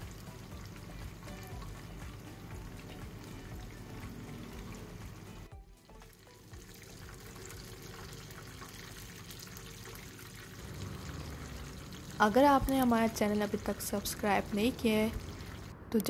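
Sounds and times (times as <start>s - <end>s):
soft background music: 0.0s - 16.0s
hot oil sizzling in a frying pan: 5.9s - 15.7s.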